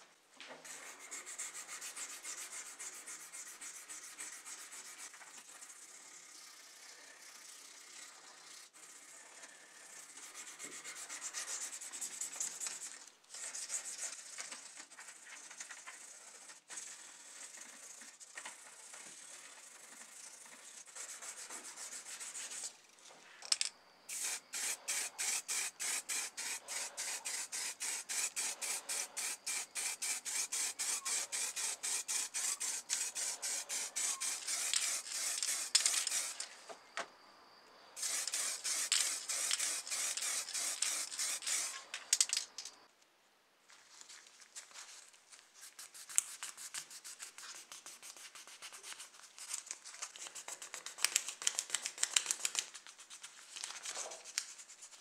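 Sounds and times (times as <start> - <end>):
hand sanding rasping strokes: 0.7 - 14.4, 15.0 - 22.7, 24.1 - 36.4, 38.0 - 41.8.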